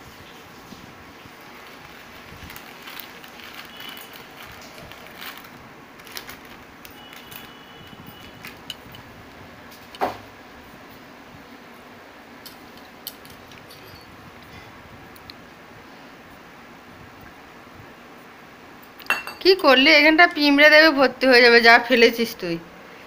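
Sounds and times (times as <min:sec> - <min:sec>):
plastic snack packet crinkling: 0:01.3 - 0:09.1.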